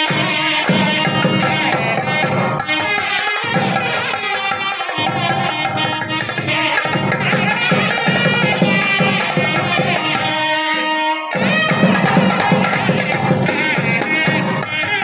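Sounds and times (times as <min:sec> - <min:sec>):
steady drum beat: 0:00.0 - 0:02.6, 0:06.5 - 0:10.4, 0:11.4 - 0:14.6.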